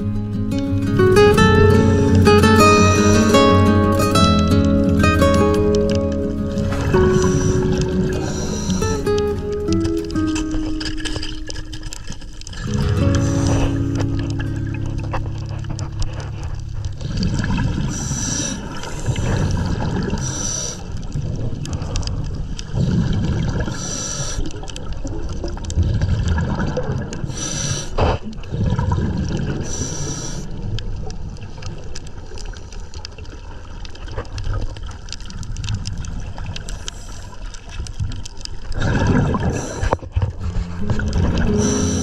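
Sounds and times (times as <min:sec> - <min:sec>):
bubbles rumbling underwater: 0:00.8 - 0:23.8, 0:24.5 - 0:27.4, 0:28.3 - 0:29.8, 0:37.6 - 0:42.0
regulator inhale hiss: 0:07.1 - 0:09.2, 0:17.8 - 0:19.4, 0:20.2 - 0:20.9, 0:23.7 - 0:24.5, 0:27.3 - 0:28.1, 0:29.6 - 0:30.5.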